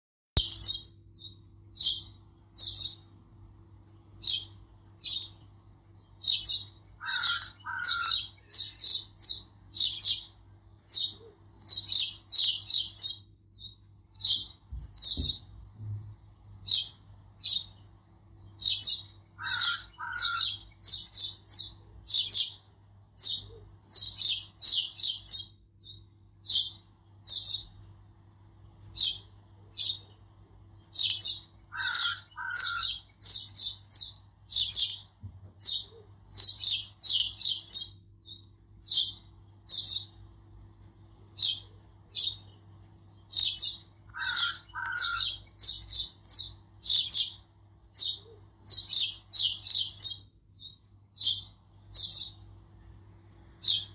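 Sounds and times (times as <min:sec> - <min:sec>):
birds chirping: 0:00.4 - 0:53.9
faint low hum: 0:00.4 - 0:53.9
lower two-part bird call: 0:18.6 - 0:22.6, 0:31.0 - 0:33.8, 0:43.3 - 0:47.4.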